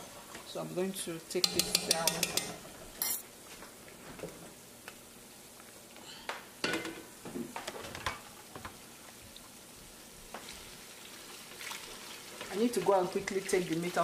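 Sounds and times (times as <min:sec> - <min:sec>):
pot and utensils clattering: 0:01.4 - 0:03.2
onions sizzling in oil: 0:04.4 - 0:14.0.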